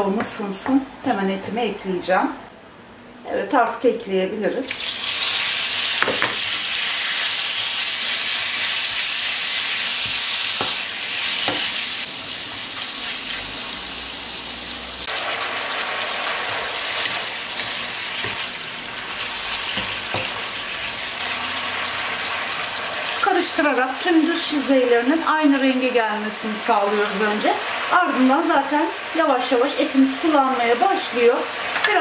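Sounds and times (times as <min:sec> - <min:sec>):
meat sizzling in hot oil: 0:04.7 - 0:32.0
spatula scraping wok: 0:15.1 - 0:23.2.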